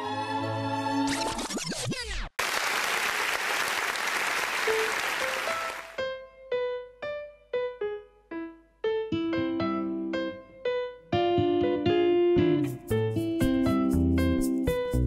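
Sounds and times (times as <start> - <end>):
applause: 2.4 - 6.0.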